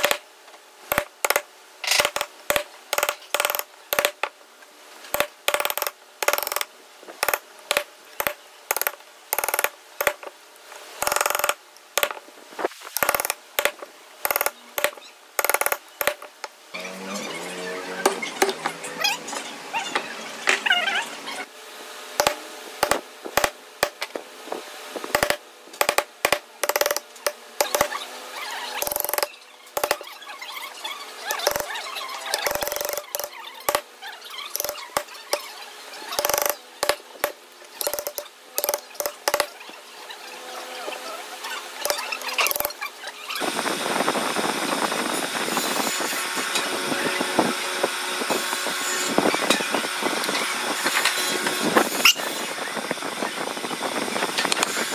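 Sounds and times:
mallet striking chisel: 0.0 - 0.2, 22.2 - 24.0, 25.2 - 27.0, 27.6 - 28.0, 28.8 - 30.0, 34.6 - 35.1, 36.2 - 39.5.

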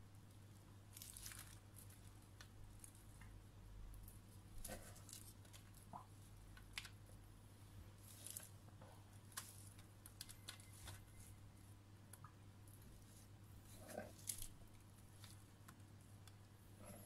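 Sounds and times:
low steady hum: 0.0 - 17.0
lettuce rustling onto foil tray: 8.0 - 8.5.

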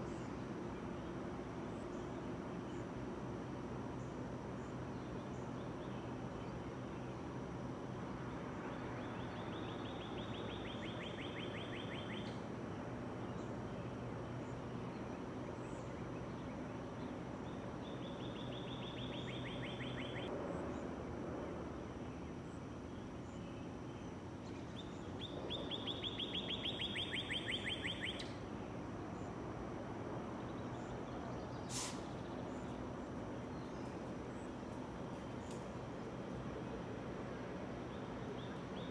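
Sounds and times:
steady background hum: 0.0 - 38.9
bird trilling: 25.5 - 28.4.

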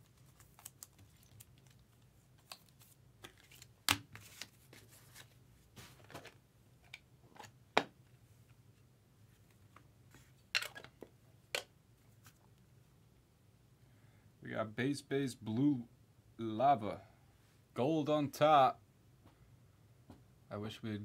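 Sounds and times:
cards sliding and shuffling: 0.0 - 7.5.

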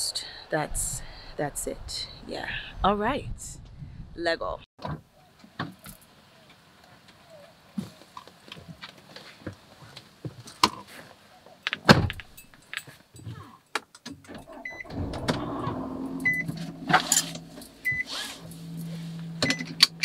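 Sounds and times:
car door shutting: 14.3 - 20.0
car engine idling: 14.9 - 20.0
warning chime beeping: 16.1 - 19.7.

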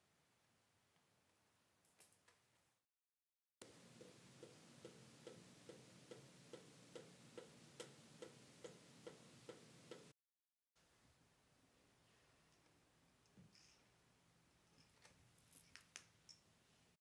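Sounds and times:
water dripping into sink: 3.6 - 10.1.

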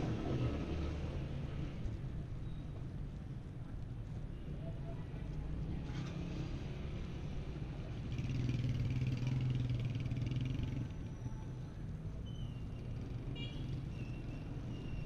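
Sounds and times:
city traffic rumble: 0.0 - 15.0
motorcycle engine passing by: 8.0 - 11.0.

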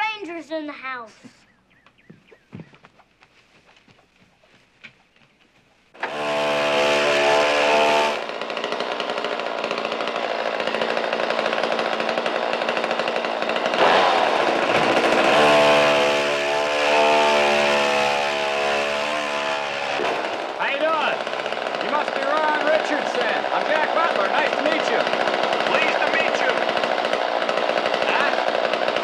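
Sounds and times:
chainsaw running: 5.9 - 29.0.

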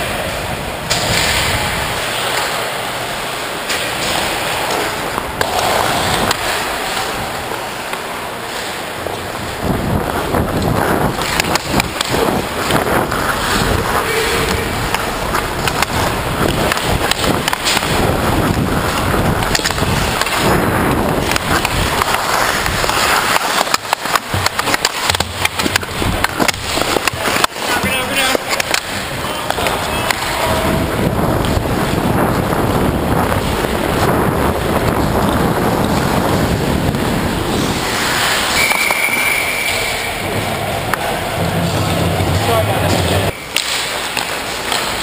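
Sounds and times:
hockey sticks clacking: 0.2 - 45.0
skate blades scraping ice: 0.2 - 45.0
wind on microphone: 9.4 - 23.0, 29.0 - 38.0.

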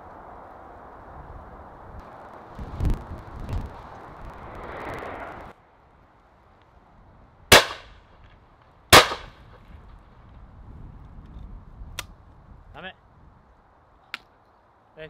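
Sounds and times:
shotgun shots with echo: 7.5 - 7.9, 8.9 - 9.4.

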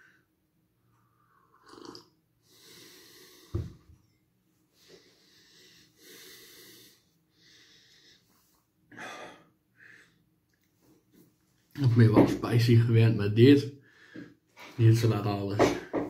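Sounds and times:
person breathing heavily: 2.4 - 3.8, 4.7 - 10.3, 13.8 - 14.5.

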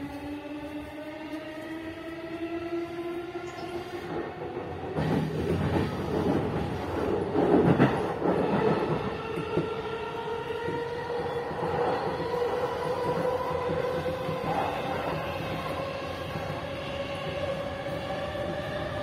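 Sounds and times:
train wheels clattering on rails: 3.6 - 9.9.

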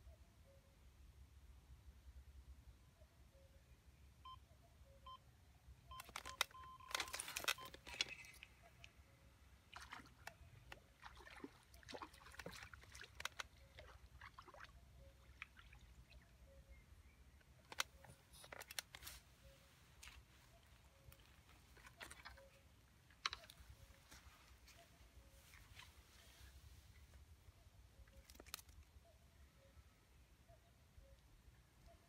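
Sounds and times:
fish splashing: 9.7 - 16.0.

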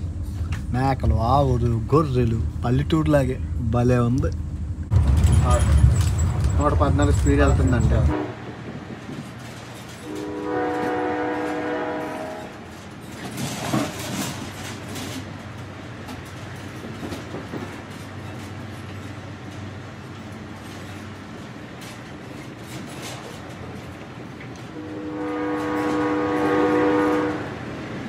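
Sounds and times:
train rumble inside carriage: 0.0 - 28.0
train horn chord: 8.1 - 8.5, 10.0 - 12.8, 24.7 - 27.6.

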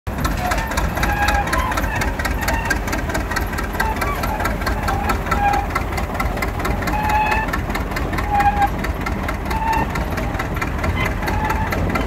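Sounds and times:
bulldozer diesel engine clattering: 0.1 - 12.0
short high squeaks: 0.2 - 8.8, 9.4 - 10.0, 10.8 - 12.0.

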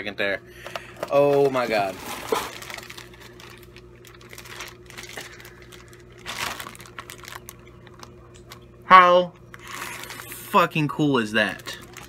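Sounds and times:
plastic bag crinkling: 1.0 - 8.7, 9.5 - 10.6, 11.2 - 12.0.

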